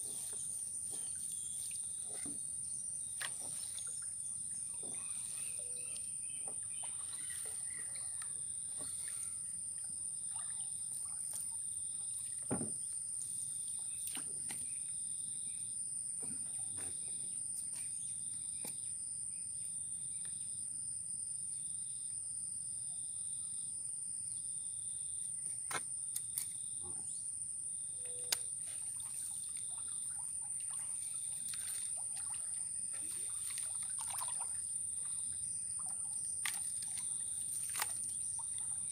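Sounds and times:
knocks and rustles of net and paddle: 0:00.0 - 0:04.0
insect chirping: 0:00.0 - 0:38.9
insects droning: 0:00.0 - 0:38.9.

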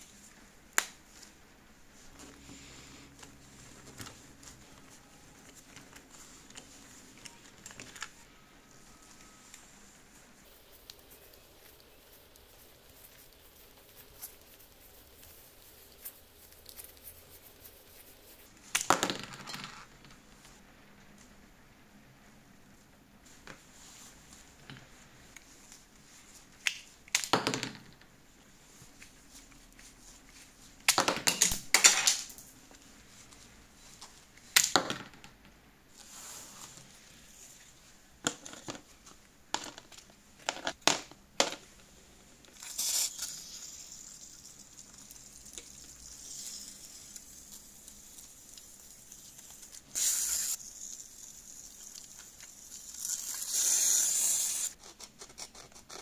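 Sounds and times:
aerosol spray hiss: 0:49.9 - 0:50.6.

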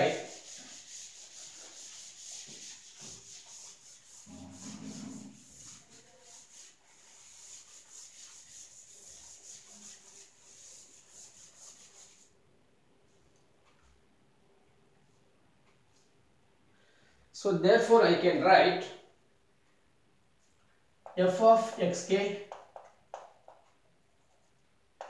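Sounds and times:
eraser wiping chalkboard: 0:00.0 - 0:12.3, 0:21.1 - 0:24.6.

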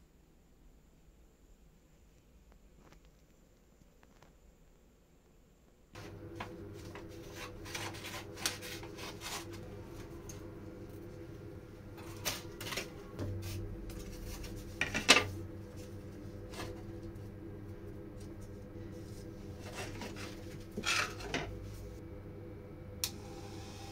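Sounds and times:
steady low hum: 0:05.9 - 0:23.9
paper rustling: 0:06.4 - 0:10.0.

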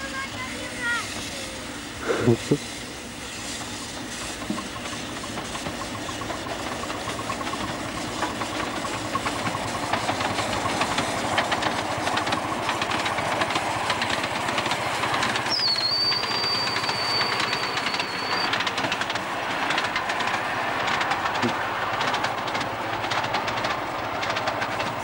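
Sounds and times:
steam exhaust beats: 0:00.0 - 0:25.0
steam hissing: 0:00.0 - 0:25.0
wheels clicking on rails: 0:00.0 - 0:25.0
shrill high whistle note: 0:15.5 - 0:18.6.

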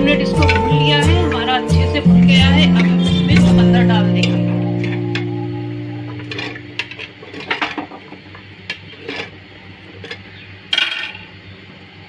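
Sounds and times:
ladle clinking and scraping pot: 0:02.1 - 0:11.3.

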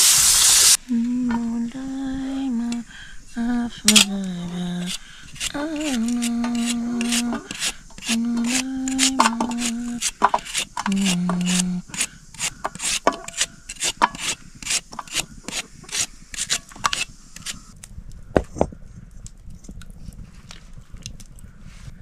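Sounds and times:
scraping on wood: 0:04.7 - 0:17.7.

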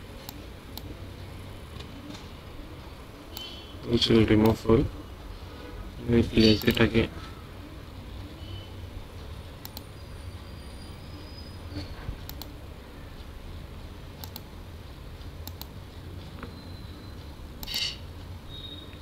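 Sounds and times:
low steady hum and hiss: 0:00.0 - 0:19.0
computer mouse clicks: 0:00.2 - 0:00.9, 0:03.3 - 0:03.5, 0:04.4 - 0:04.6, 0:06.4 - 0:06.8, 0:09.6 - 0:09.9, 0:11.8 - 0:12.6, 0:14.2 - 0:14.5, 0:15.4 - 0:16.5, 0:17.6 - 0:18.0.

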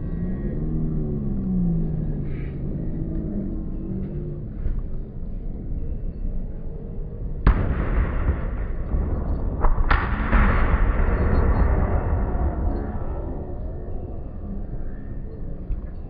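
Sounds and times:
rumbling crackle: 0:00.0 - 0:16.0
fireworks bangs: 0:07.5 - 0:13.4.

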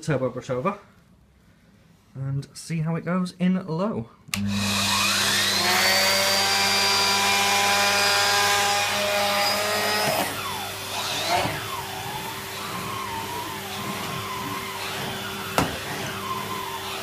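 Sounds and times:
vacuum cleaner switch click: 0:04.3 - 0:04.6
vacuum cleaner motor whine: 0:04.4 - 0:17.0.

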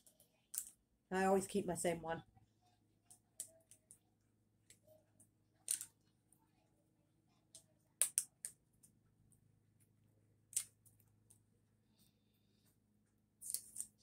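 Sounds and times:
plastic clicks and snaps: 0:07.5 - 0:08.6, 0:10.5 - 0:11.0.

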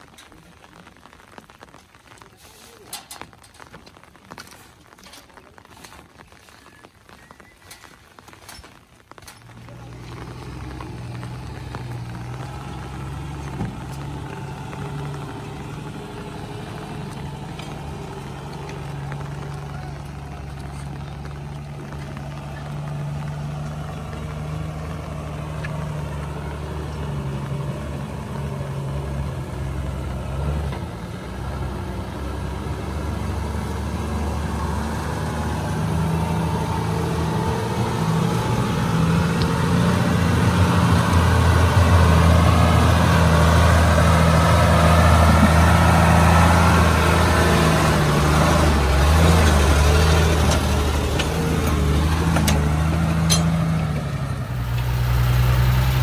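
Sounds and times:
water surging: 0:00.0 - 0:56.0
truck diesel engine running: 0:07.7 - 0:56.0.

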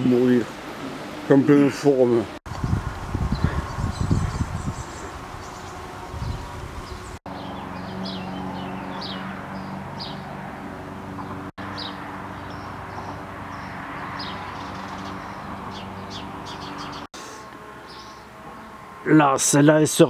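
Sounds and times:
small birds chirping: 0:02.5 - 0:10.3, 0:11.1 - 0:18.8.

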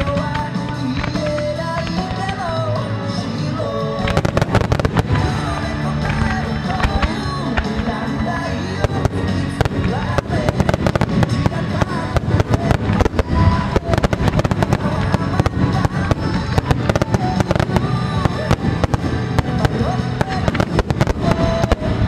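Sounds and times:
music playing: 0:00.0 - 0:22.0
firework shells bursting: 0:08.8 - 0:22.0.

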